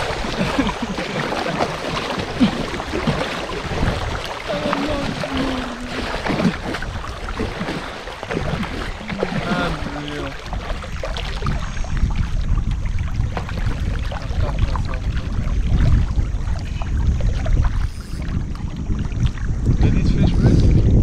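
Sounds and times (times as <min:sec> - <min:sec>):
kayak knocks: 0:00.0 - 0:19.4
water: 0:00.0 - 0:21.0
wind rumbling on microphone: 0:00.0 - 0:21.0
faint voices: 0:04.4 - 0:06.6, 0:08.8 - 0:10.8.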